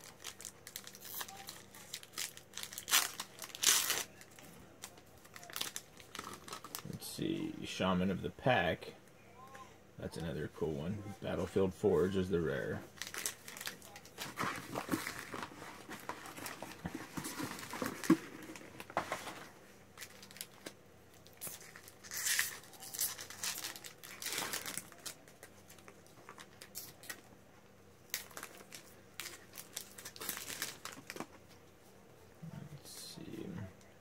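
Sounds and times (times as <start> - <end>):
foil wrapper crinkling and tearing: 0.0 - 6.9, 12.9 - 18.9, 19.9 - 27.3, 28.1 - 31.3.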